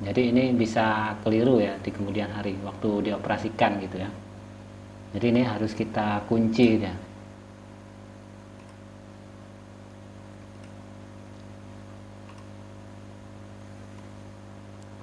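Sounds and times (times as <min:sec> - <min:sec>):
low electrical hum: 0:00.0 - 0:15.0
computer mouse clicks: 0:08.6 - 0:08.8, 0:10.5 - 0:10.8, 0:12.2 - 0:12.6, 0:13.9 - 0:14.2.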